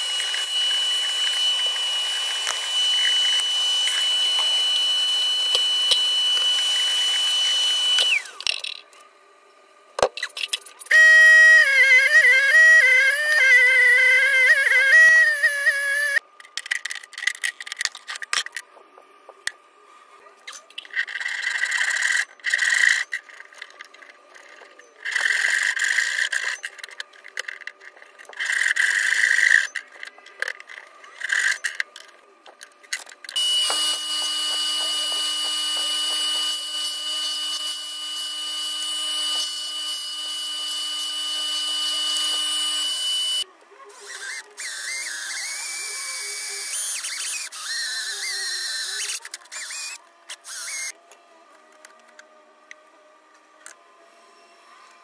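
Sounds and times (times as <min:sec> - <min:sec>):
electric drill motor running: 0:00.0 - 0:08.5, 0:10.9 - 0:16.2, 0:33.3 - 0:51.1.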